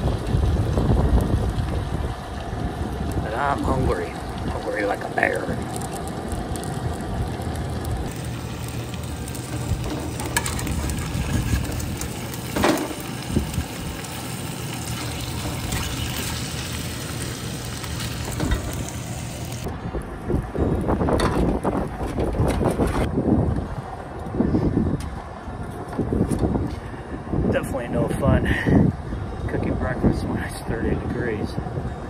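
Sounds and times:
wind rumble on microphone: 0.0 - 14.2, 14.9 - 32.0
eggs sizzling in a pan: 4.4 - 19.7.

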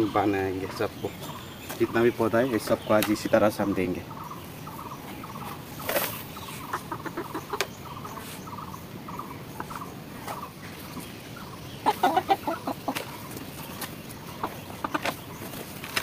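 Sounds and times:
chicken clucking: 0.0 - 16.0.

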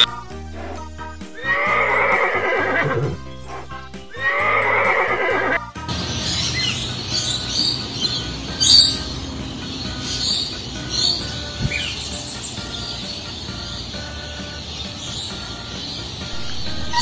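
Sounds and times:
background music: 0.0 - 17.0
horse whinnying: 1.4 - 5.6
faint high bird chirps: 4.1 - 17.0.

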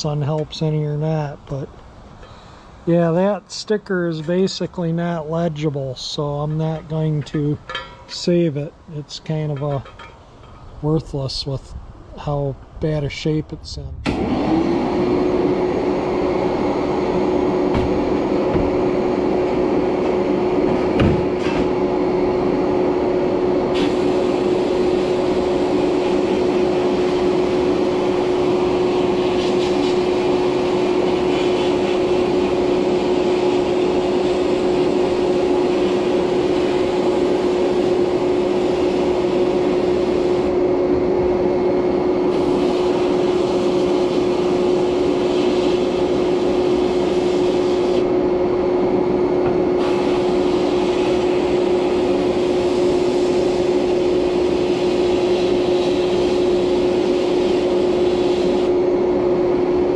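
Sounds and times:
air and beads blasting hiss: 23.7 - 40.6, 42.3 - 48.1, 49.8 - 58.8.

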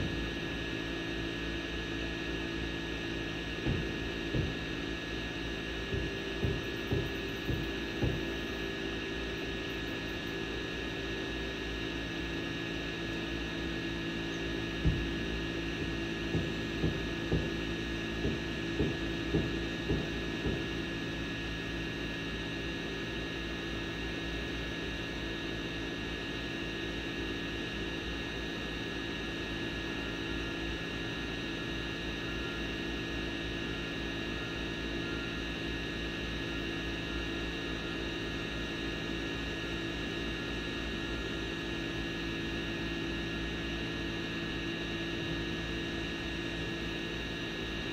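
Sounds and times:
drone propellers humming: 0.0 - 22.4.

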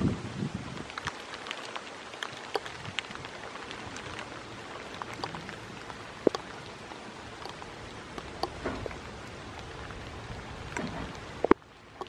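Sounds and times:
raindrops ticking close by: 0.0 - 12.0
steady rain falling: 0.0 - 12.0.

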